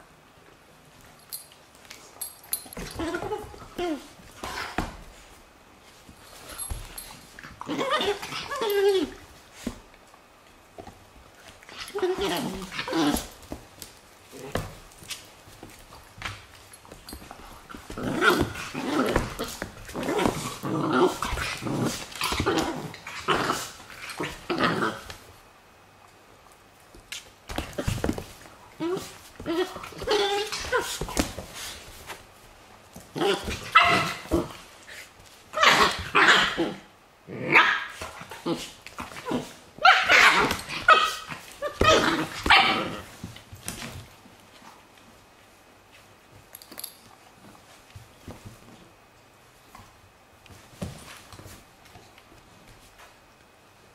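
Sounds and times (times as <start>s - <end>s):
dogs growling: 17.7s - 25.2s.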